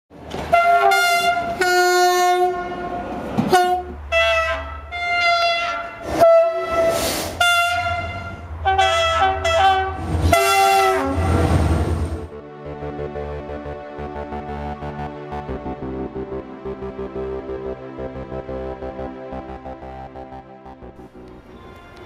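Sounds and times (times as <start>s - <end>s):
locomotive horn blasts: 0.4s - 11.6s, 21.4s - 22.0s.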